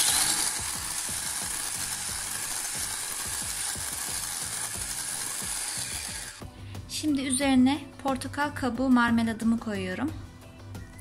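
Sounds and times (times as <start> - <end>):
electric hand mixer whisking batter: 0.0 - 6.5.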